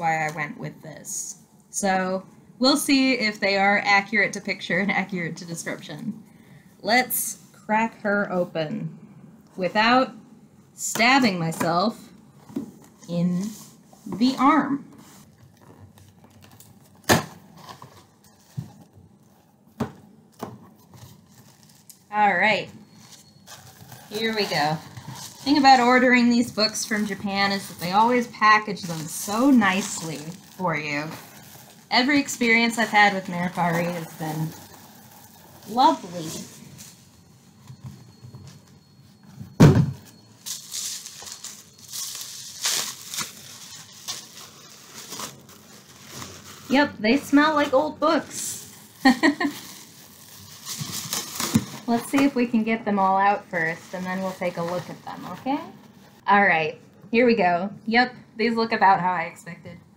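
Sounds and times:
bubble wrap crinkling: 12.1s - 39.3s, 40.0s - 56.3s.

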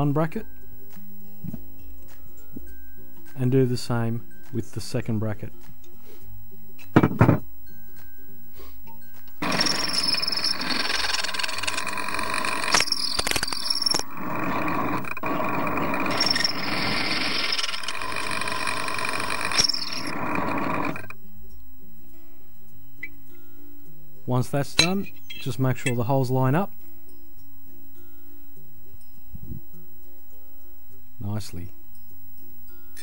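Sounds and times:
background music: 0.0s - 9.4s, 21.2s - 33.0s
sharp knocks: 6.9s - 7.5s
drill press boring through metal: 9.4s - 21.2s.

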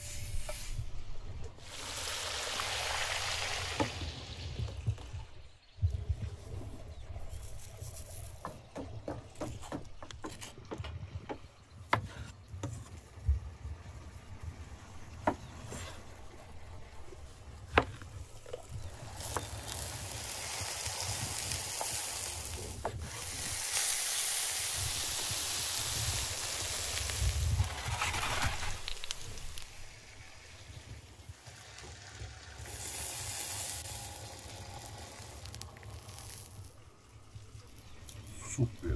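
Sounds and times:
meat sizzling in pan: 1.6s - 4.1s, 18.9s - 30.7s, 31.3s - 38.2s.

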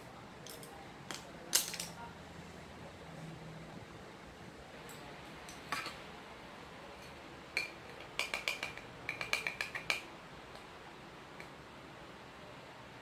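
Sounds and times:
makeup containers clicking and clinking: 7.6s - 10.1s.

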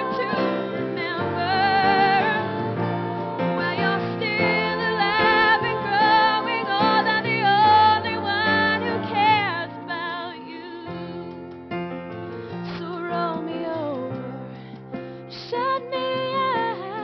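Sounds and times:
woman singing with vibrato: 0.0s - 11.5s, 15.3s - 17.0s
instrumental accompaniment: 0.0s - 17.0s.

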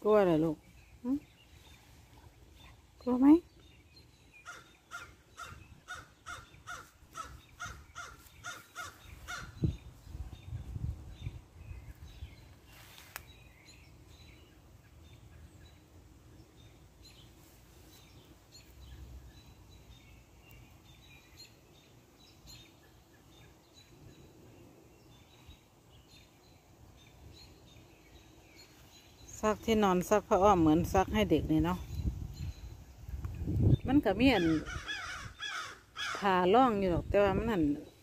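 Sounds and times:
faint bird calls: 4.3s - 9.9s, 34.4s - 36.3s
crow cawing: 4.4s - 9.5s, 34.5s - 36.2s.

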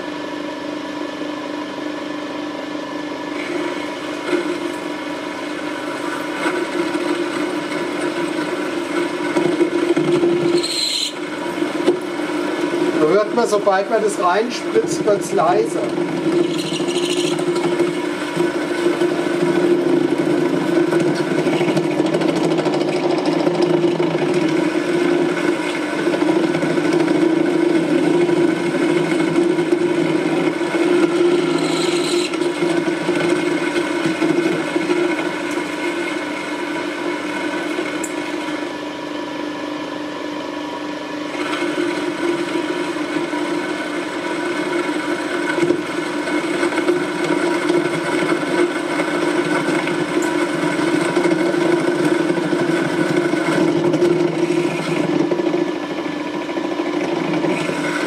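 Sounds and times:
lathe motor humming: 2.0s - 58.0s
cutting tool scraping metal: 10.4s - 11.2s, 16.3s - 17.5s, 31.3s - 32.4s.

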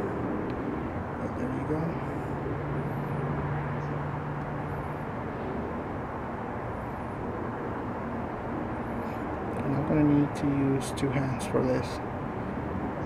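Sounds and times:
low hum: 0.0s - 10.4s
low rumble like distant engine: 0.0s - 13.0s.

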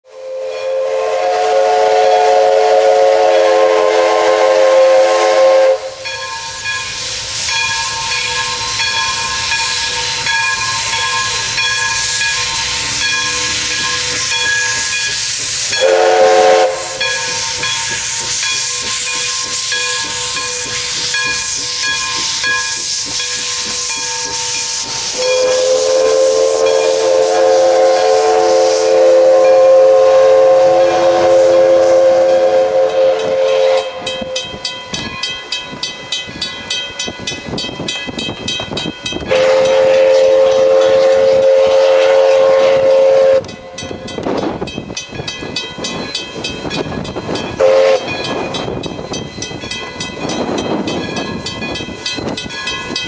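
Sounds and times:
steam whistle blasts: 0.1s - 34.7s, 39.2s - 43.8s, 47.6s - 48.2s
steam hissing: 0.1s - 53.0s.

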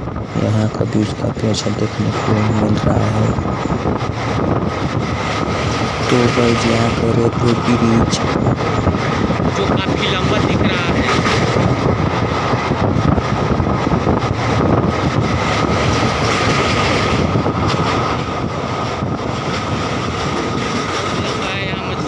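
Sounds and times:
train wheels on rails: 0.0s - 22.0s
thin steady whine: 0.4s - 4.0s.

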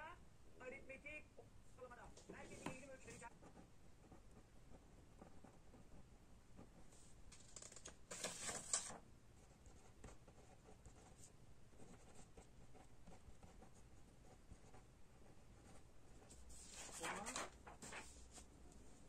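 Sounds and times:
pen scratching on paper: 2.4s - 4.5s, 5.1s - 6.0s, 6.6s - 18.2s.

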